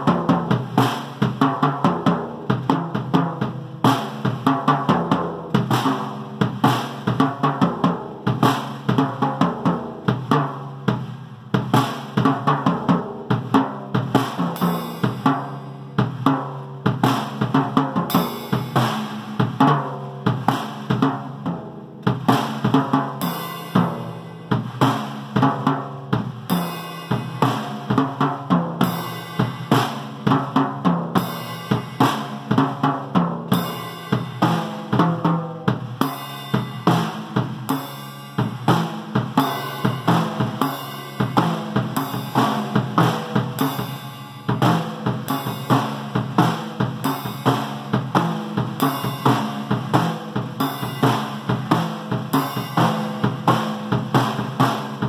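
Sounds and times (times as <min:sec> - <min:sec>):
drum beat on bass and snare: 0:00.0 - 0:55.0
cymbal crashes: 0:14.5 - 0:16.1, 0:18.1 - 0:19.5, 0:23.2 - 0:25.4, 0:26.5 - 0:28.0, 0:28.8 - 0:30.3, 0:31.2 - 0:32.6, 0:33.5 - 0:35.0, 0:36.0 - 0:53.9.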